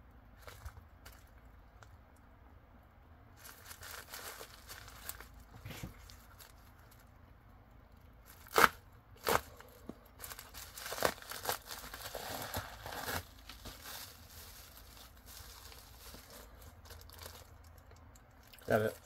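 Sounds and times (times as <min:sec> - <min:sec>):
paper packaging rustling: 0:03.4 - 0:07.1, 0:08.2 - 0:17.7.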